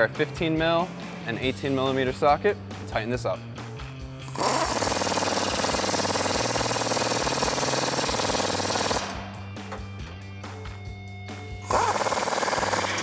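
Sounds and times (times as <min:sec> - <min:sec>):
pneumatic impact wrench hammering: 0:04.3 - 0:09.9, 0:11.6 - 0:13.0.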